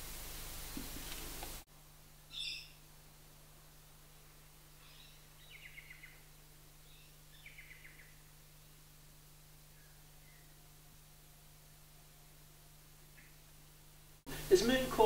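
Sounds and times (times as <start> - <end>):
faint low hum: 0.0 - 15.0
birds calling: 2.3 - 2.9, 4.7 - 8.8, 9.6 - 10.6.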